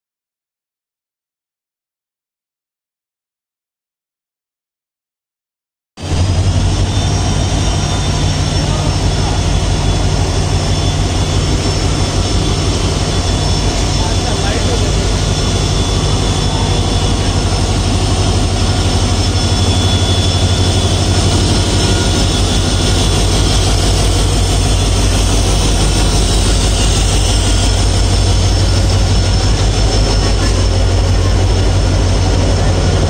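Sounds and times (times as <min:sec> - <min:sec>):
diesel locomotive engine passing: 0:06.0 - 0:33.0.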